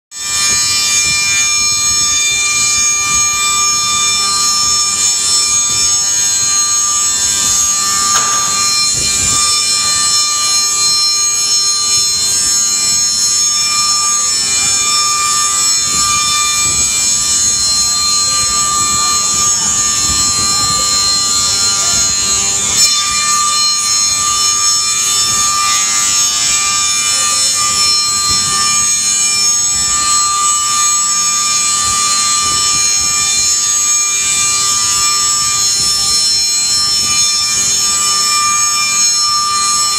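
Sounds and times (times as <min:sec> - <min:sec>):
moulder machine high-pitched whine: 0:00.1 - 0:39.9.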